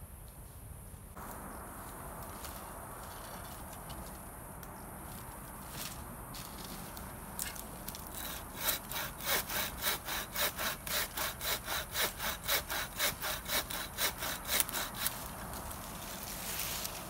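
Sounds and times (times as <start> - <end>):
bow saw cutting wood: 8.0 - 16.0.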